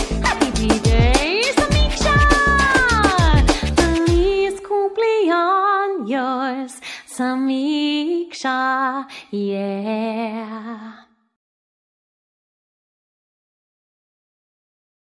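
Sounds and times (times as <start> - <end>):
woman singing unaccompanied: 0.0 - 11.2.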